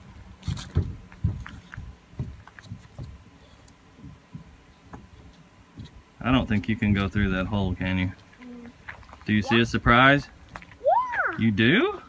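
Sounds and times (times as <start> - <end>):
thumps on climbing wall: 0.6 - 3.2.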